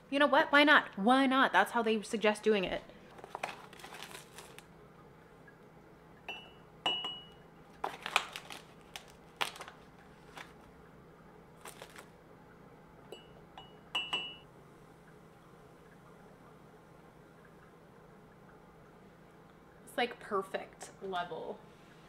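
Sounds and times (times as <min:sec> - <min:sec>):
paper pouch rustling: 0:03.1 - 0:04.6, 0:07.8 - 0:10.7, 0:11.6 - 0:12.1
spoon clinking against ceramic mug: 0:06.3 - 0:07.4, 0:13.1 - 0:14.4.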